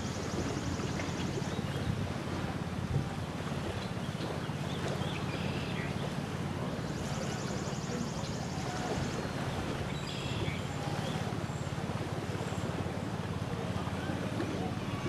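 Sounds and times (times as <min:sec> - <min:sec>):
wind buffeting microphone: 0:00.0 - 0:05.2
small waves lapping shore: 0:00.0 - 0:15.0.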